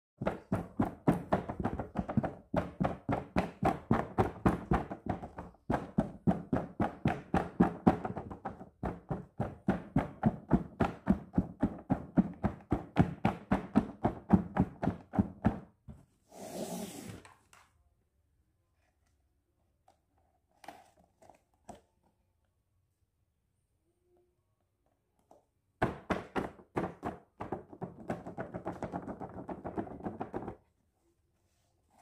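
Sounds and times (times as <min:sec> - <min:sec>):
hands tapping on plastic and fabric: 0:00.2 - 0:16.0, 0:25.8 - 0:30.6.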